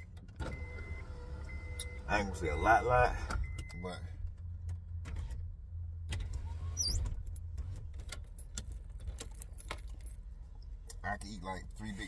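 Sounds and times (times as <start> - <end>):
short high squeak: 6.7 - 7.1.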